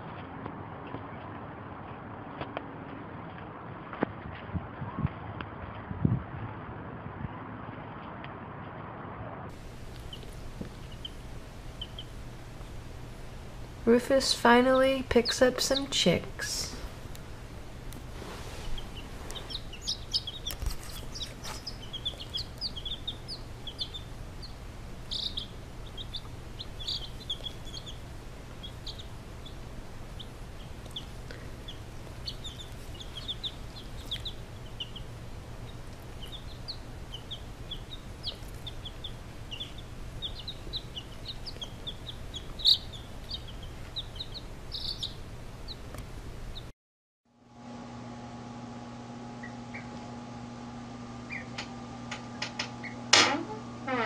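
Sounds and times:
low hum: 0:00.0 - 0:46.7, 0:47.4 - 0:54.0
baby chicks peeping: 0:09.5 - 0:17.2, 0:17.9 - 0:46.7, 0:49.2 - 0:50.2, 0:51.1 - 0:53.1.

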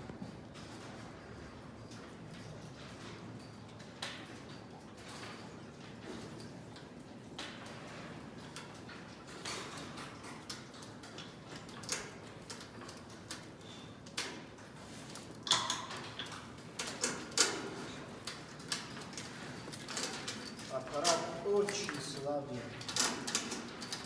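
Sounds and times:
metallic clicks and knocks: 0:00.1 - 0:24.0.

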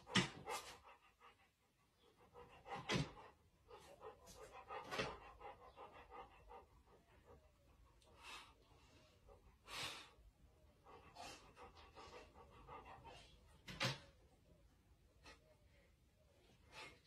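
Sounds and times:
dog panting: 0:00.0 - 0:13.9.

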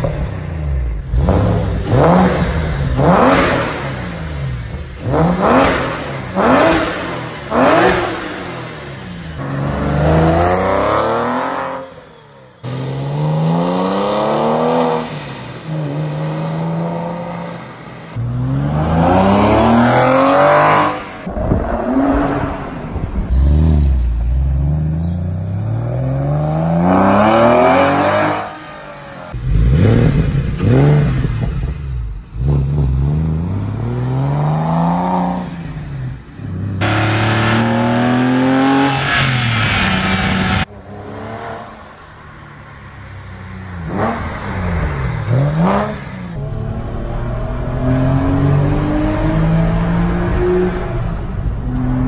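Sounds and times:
car engine revving: 0:00.0 - 0:52.0.

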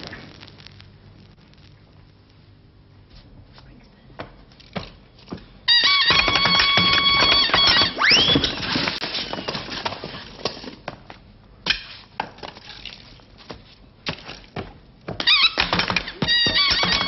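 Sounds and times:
sharp knocks and clatters: 0:04.2 - 0:11.1, 0:13.5 - 0:17.0.

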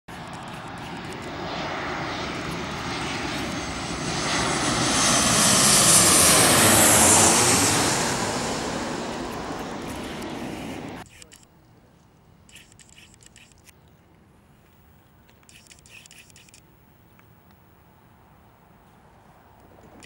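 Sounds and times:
jet airliner passing overhead: 0:00.1 - 0:11.1, 0:19.0 - 0:20.0.

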